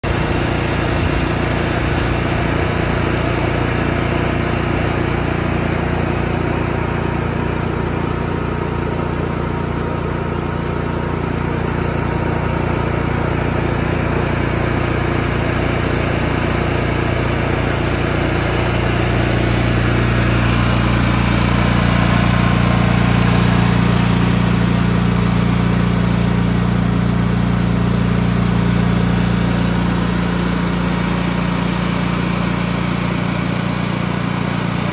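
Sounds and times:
generator engine running: 0:00.0 - 0:34.9.

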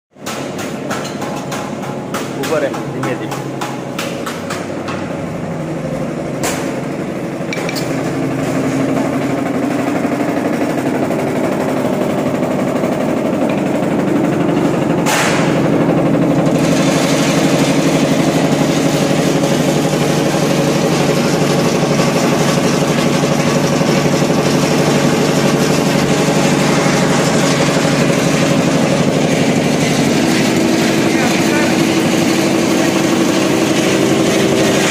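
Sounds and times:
sharp knocks: 0:00.2 - 0:05.1, 0:15.0 - 0:15.7
peanut machine droning: 0:04.6 - 0:34.9.

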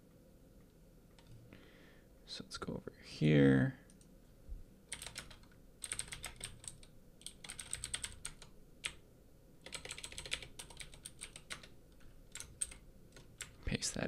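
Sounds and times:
keyboard typing: 0:01.1 - 0:01.4, 0:04.9 - 0:09.0, 0:09.6 - 0:13.6.

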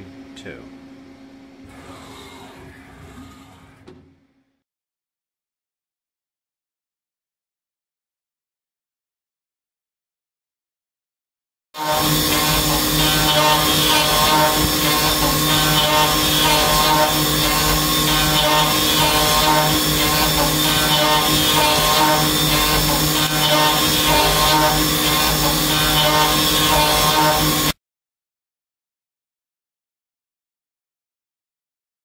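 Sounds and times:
milling machine cutting metal: 0:11.8 - 0:27.8.

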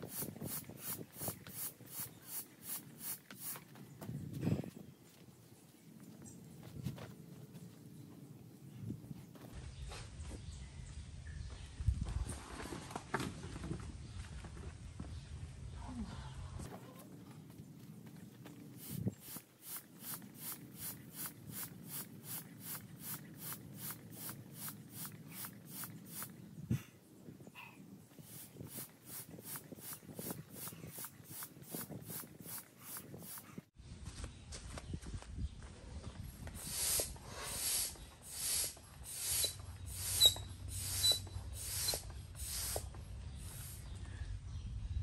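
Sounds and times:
hand air pump strokes: 0:00.0 - 0:03.7, 0:18.8 - 0:26.4, 0:28.2 - 0:33.7, 0:36.5 - 0:43.8
pump squeaking: 0:39.1 - 0:42.8.

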